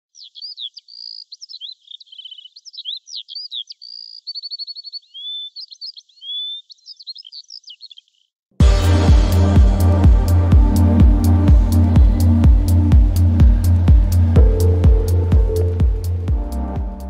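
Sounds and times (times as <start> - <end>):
songbird singing: 0.0 - 8.4, 11.7 - 17.0
electronic music with bass beat: 8.6 - 17.0.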